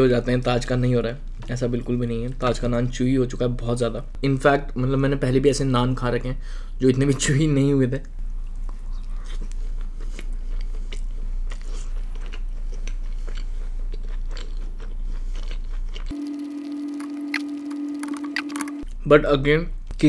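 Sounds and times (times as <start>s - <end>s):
chewing bread: 8.4s - 16.2s
steady humming tone: 15.9s - 19.0s
low hum: 16.0s - 19.0s.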